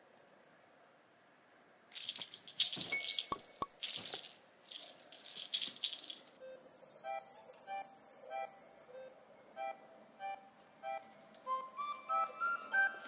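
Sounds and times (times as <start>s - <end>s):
cat toy jingling rattle: 2.0s - 6.4s.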